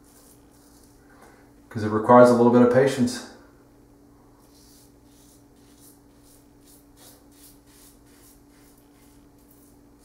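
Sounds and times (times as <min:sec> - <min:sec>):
steady low hum: 0:00.0 - 0:10.0
razor scraping stubble: 0:04.4 - 0:09.8.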